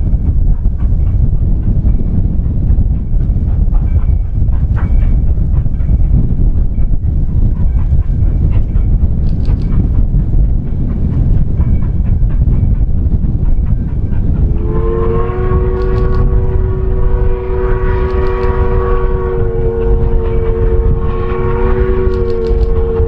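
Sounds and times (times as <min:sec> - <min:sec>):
loud low rumble: 0:00.0 - 0:23.0
train horn chord: 0:14.4 - 0:23.0.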